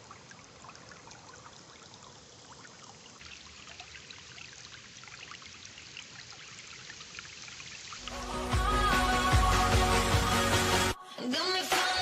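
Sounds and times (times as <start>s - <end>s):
stream water babbling over rocks: 0.0s - 8.4s.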